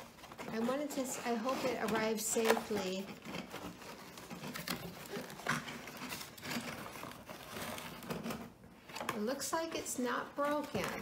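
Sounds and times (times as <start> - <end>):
cardboard box rustling and scraping: 0.0 - 8.6.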